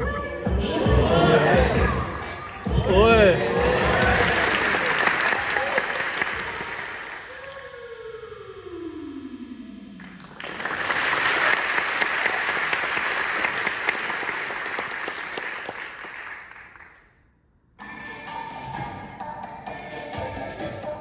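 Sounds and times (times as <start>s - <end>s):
audience applauding: 3.2s - 7.5s, 10.0s - 17.0s.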